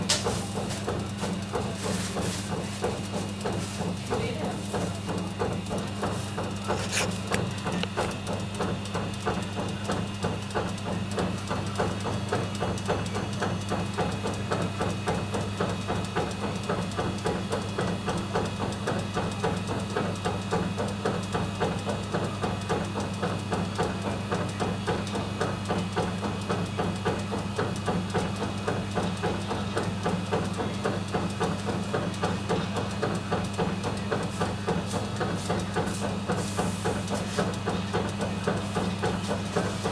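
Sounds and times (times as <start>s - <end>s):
steady electric hum: 0.0s - 11.5s
mechanical clatter of spit drive: 0.0s - 39.9s.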